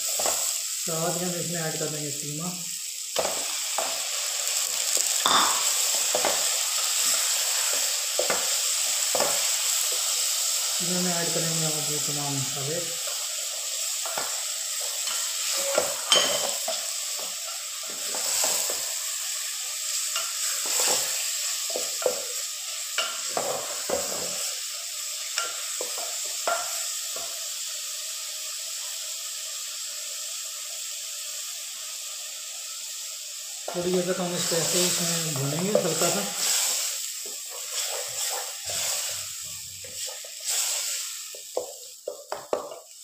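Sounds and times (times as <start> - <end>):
meat sizzling in hot oil: 0.0 - 43.0
wooden spatula scraping a pot: 37.5 - 41.0.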